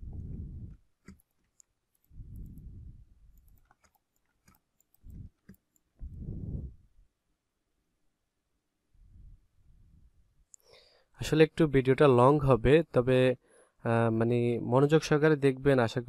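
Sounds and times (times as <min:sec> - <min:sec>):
muffled puffs on microphone: 0:00.0 - 0:00.8, 0:02.2 - 0:03.1, 0:05.0 - 0:05.4, 0:06.0 - 0:06.9
computer mouse clicking: 0:00.6 - 0:02.7, 0:03.3 - 0:05.9.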